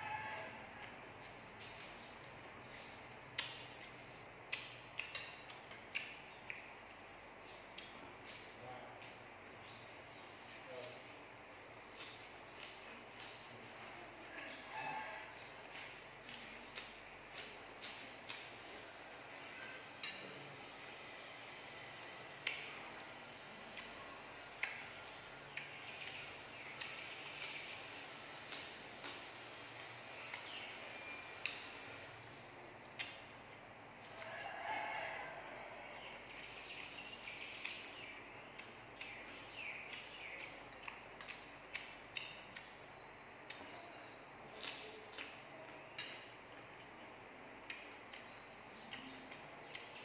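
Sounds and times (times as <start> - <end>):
wet mouth smacks while chewing: 2.7 - 9.2, 39.9 - 42.8, 44.5 - 48.3
crunchy chewing: 10.2 - 50.0.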